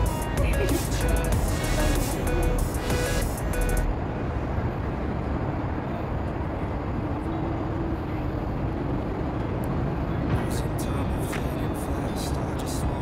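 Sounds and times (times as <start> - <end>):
music: 0.0 - 3.9
low outdoor rumble: 0.0 - 13.0.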